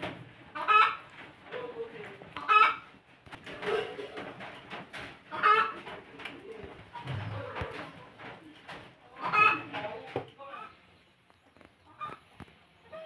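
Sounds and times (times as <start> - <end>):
chickens clucking: 0.0 - 13.0
loud chicken calls: 9.2 - 9.8.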